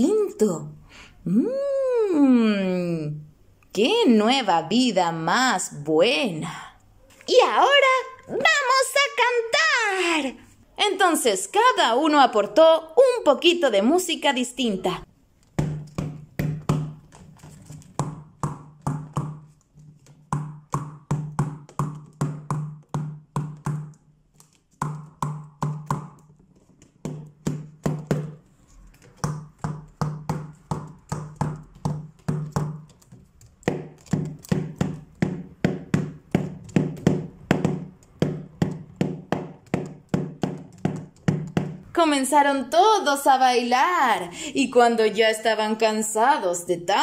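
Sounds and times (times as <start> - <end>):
hand tapping plastic bottles: 15.4 - 41.8.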